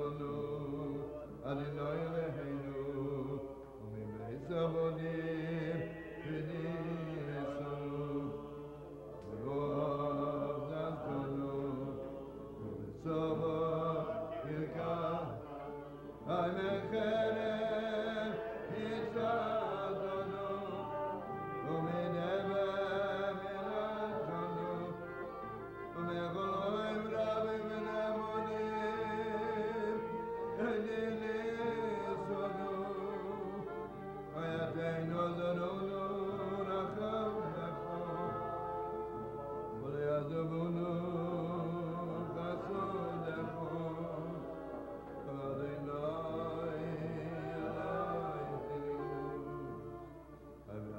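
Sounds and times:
man singing chant-like melody: 0:00.0 - 0:25.2.

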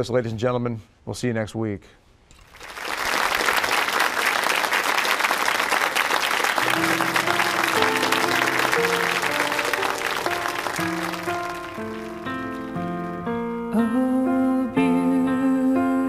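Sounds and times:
studio audience applauding: 0:02.6 - 0:13.3
instrumental music with held notes: 0:06.6 - 0:16.0.

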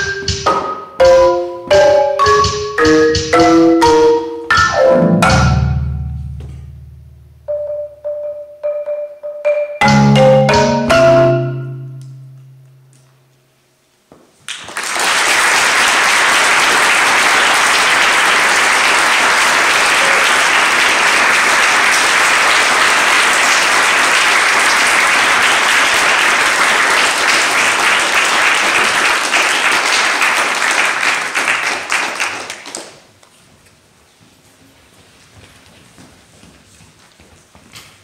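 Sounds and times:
audience applauding: 0:14.5 - 0:33.2.

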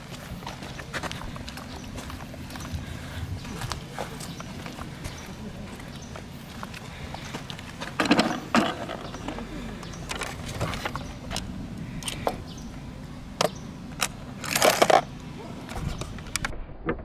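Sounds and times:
plastic scraping rattles: 0:14.0 - 0:15.1.

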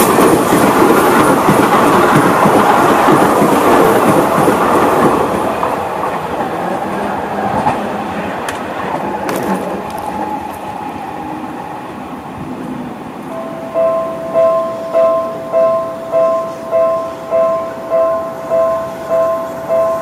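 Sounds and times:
train wheels clattering on track: 0:00.0 - 0:13.5.

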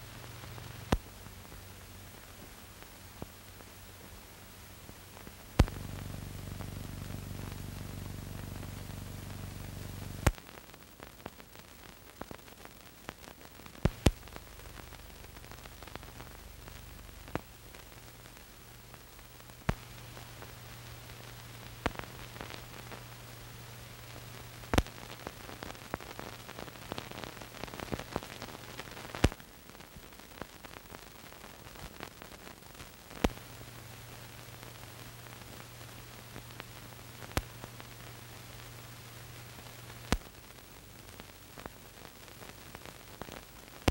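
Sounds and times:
film hiss: 0:00.0 - 0:43.9
sharp pops and clicks: 0:00.2 - 0:01.6, 0:05.2 - 0:10.6, 0:11.2 - 0:29.4, 0:33.1 - 0:33.8, 0:34.5 - 0:38.8, 0:39.6 - 0:40.4, 0:42.4 - 0:43.9
low hum: 0:05.6 - 0:10.3.

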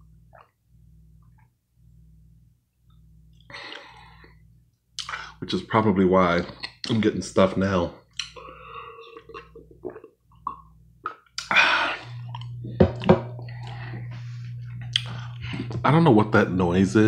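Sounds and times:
steady low hum: 0:00.0 - 0:17.0
person swallowing from a cup: 0:09.0 - 0:13.7
cup knocking on surface: 0:12.8 - 0:13.3.

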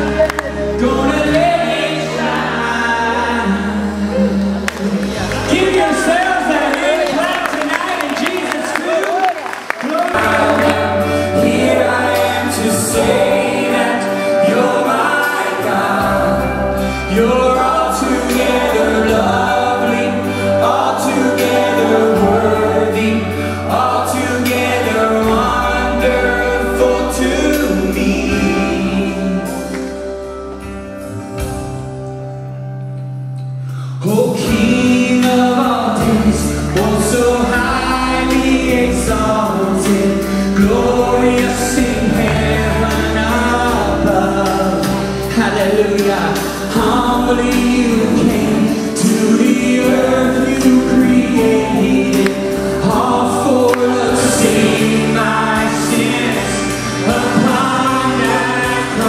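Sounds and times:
accompaniment with bass notes: 0:00.0 - 0:08.7, 0:10.1 - 0:59.0
man singing worship song: 0:00.0 - 0:30.4, 0:33.6 - 0:59.0.

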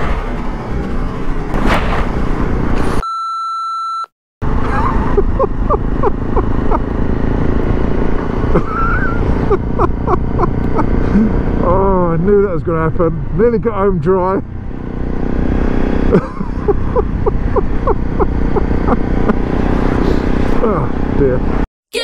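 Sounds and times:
motorcycle engine: 0:04.4 - 0:21.6.

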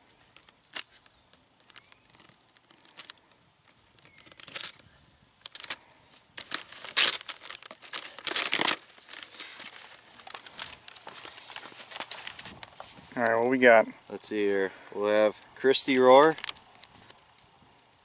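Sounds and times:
paper crinkling: 0:00.0 - 0:13.3, 0:15.9 - 0:17.2
tape ripping: 0:00.1 - 0:04.8, 0:05.4 - 0:05.8, 0:06.4 - 0:13.0, 0:16.1 - 0:17.2.

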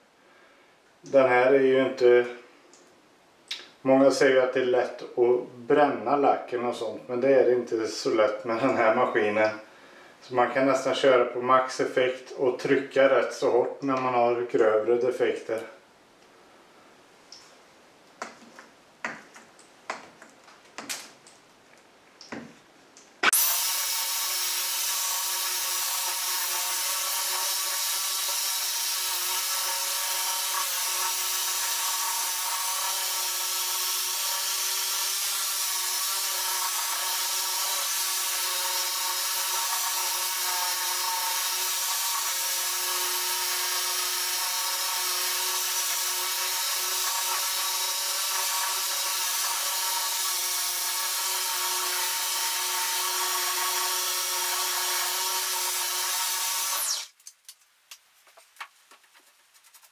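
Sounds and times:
electric polisher whining: 0:23.2 - 0:28.8, 0:55.9 - 0:57.1.

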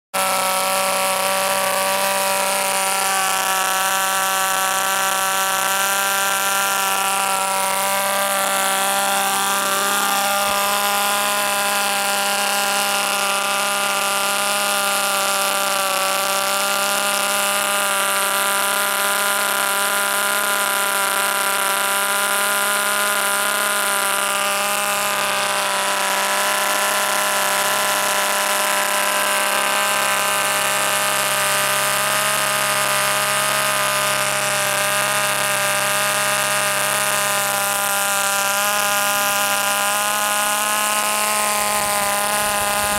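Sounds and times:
model aircraft engine buzzing: 0:00.1 - 0:42.9.

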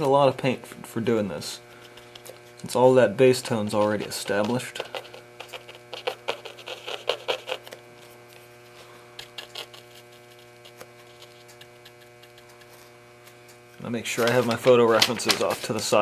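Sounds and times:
steady electrical hum: 0:00.0 - 0:16.0
paintbrush scratching on canvas: 0:03.6 - 0:08.5, 0:09.1 - 0:13.0.

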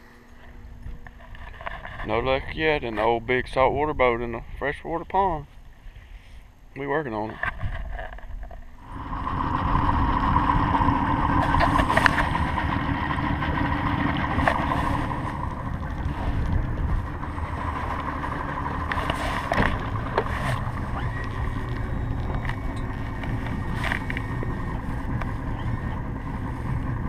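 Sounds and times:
outboard motor drone: 0:00.0 - 0:06.2, 0:07.4 - 0:27.0
wind: 0:00.0 - 0:27.0
water noise: 0:08.4 - 0:27.0.

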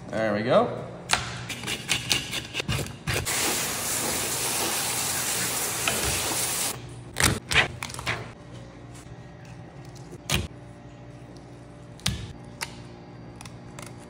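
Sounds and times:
hose spray hissing: 0:03.3 - 0:06.7.

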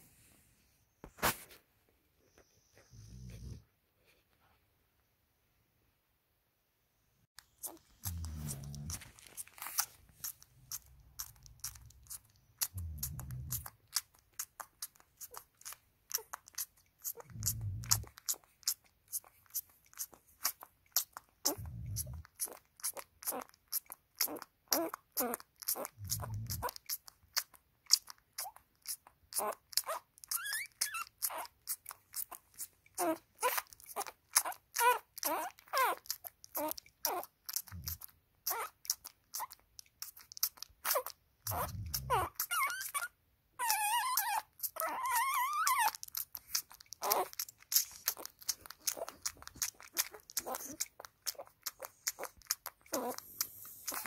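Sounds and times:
puppy whining: 0:02.2 - 0:04.2, 0:07.4 - 0:54.0
puppy suckling wet smacking: 0:07.4 - 0:54.0
puppy squealing: 0:29.4 - 0:31.6, 0:32.2 - 0:38.8, 0:40.8 - 0:54.0.

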